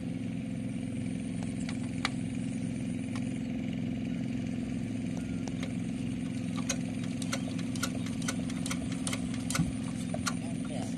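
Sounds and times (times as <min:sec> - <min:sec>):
diesel engine idling: 0:00.0 - 0:10.9
sharp clicks: 0:05.2 - 0:10.4.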